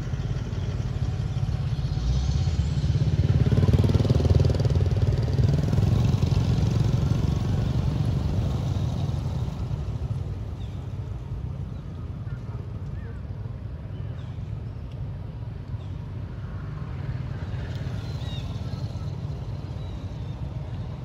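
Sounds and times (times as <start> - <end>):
vehicle engine passing by: 0.0 - 10.8, 16.5 - 20.9.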